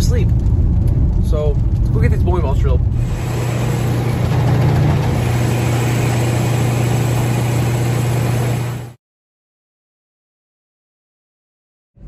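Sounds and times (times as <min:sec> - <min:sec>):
drill press humming and grinding: 0:03.0 - 0:09.0.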